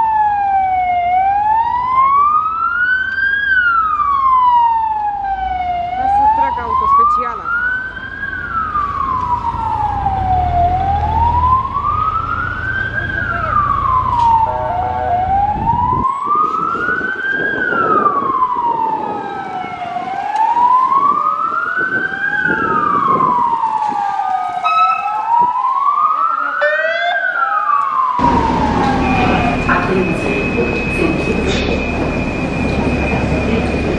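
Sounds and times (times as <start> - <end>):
fainter second siren: 0.0 - 33.9
fire engine siren wailing: 0.0 - 33.9
low engine rumble: 7.8 - 16.2, 28.0 - 33.9.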